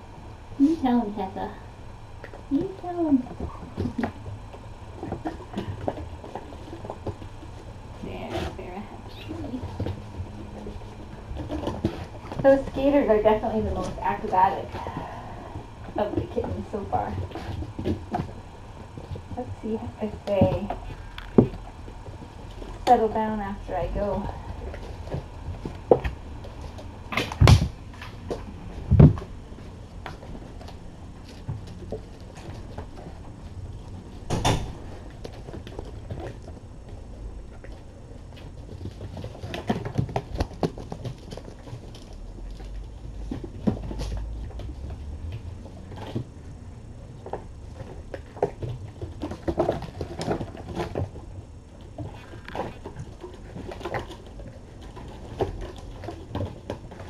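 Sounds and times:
kittens scampering paws: 2.1 - 57.0
thumps of kittens playing: 24.1 - 33.4.

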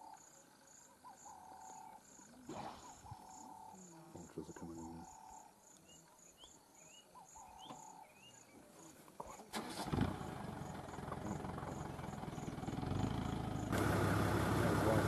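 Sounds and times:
insects chirping: 0.0 - 15.0
vehicle engine starting and rumbling: 9.5 - 15.0.

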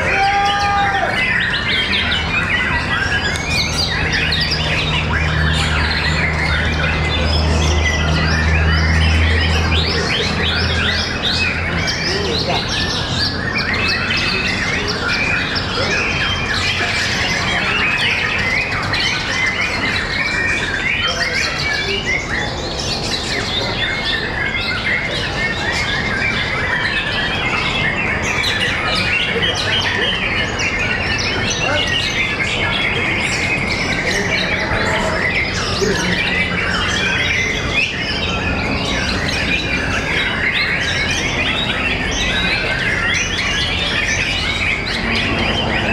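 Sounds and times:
birds singing rapid chirps and whistles: 0.0 - 45.9.

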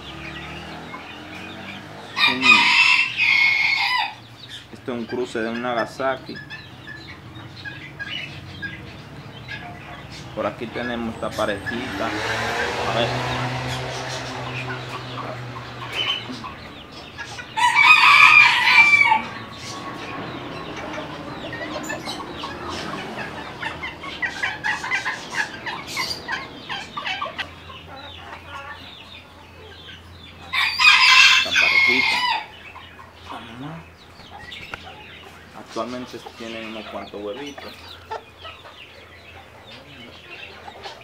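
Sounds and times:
hens clucking: 0.0 - 41.0
rooster crowing: 2.0 - 4.3, 17.4 - 20.4, 30.4 - 32.6.

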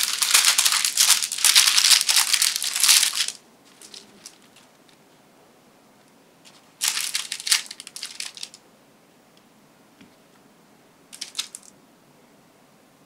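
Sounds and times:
parchment paper crinkling: 0.0 - 5.0, 6.5 - 8.6, 11.2 - 11.7.

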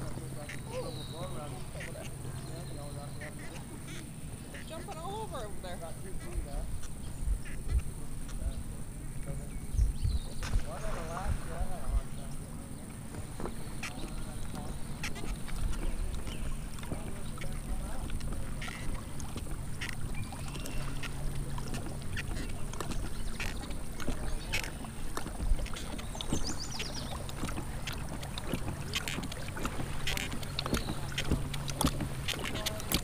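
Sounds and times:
birds calling: 0.0 - 33.0
water splashes and drips: 10.4 - 33.0.

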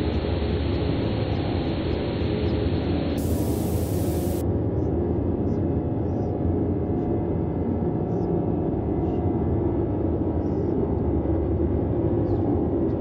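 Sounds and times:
deep steady hiss: 0.0 - 4.4.

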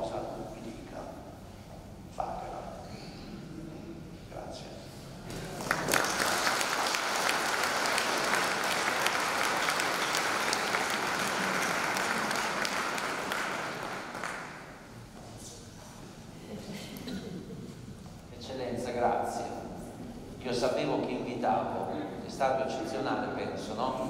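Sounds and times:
congregation applauding: 5.3 - 14.9.

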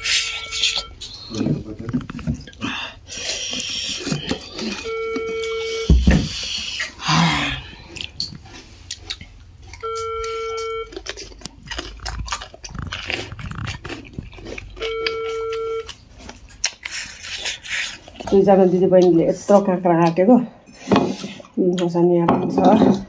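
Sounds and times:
electronic beep: 0.0 - 1.4, 4.8 - 6.1, 9.8 - 10.9, 14.8 - 15.9
person chewing crisp cucumber: 0.0 - 19.8, 20.6 - 21.9.

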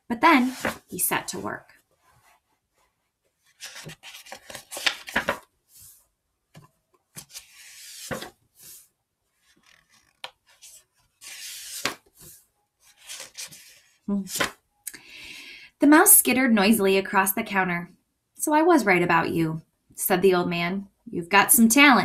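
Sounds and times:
book pages rustling: 0.4 - 14.6.

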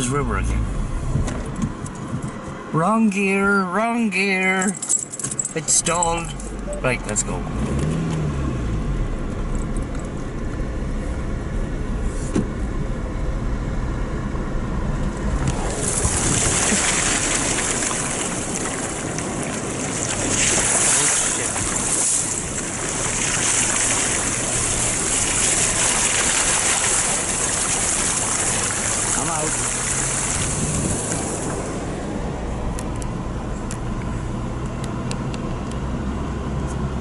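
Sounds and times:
car engine in low gear: 0.0 - 3.2, 4.6 - 37.0
water spraying off tyres: 15.2 - 32.1.

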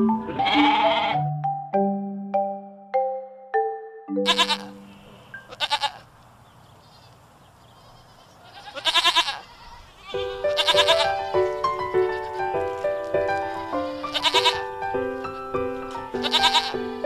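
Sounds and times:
background music: 0.0 - 5.0, 10.2 - 17.0
sheep bleating: 0.4 - 1.2, 4.2 - 4.8, 5.5 - 6.1, 7.8 - 12.5, 13.5 - 14.7, 16.1 - 17.0.

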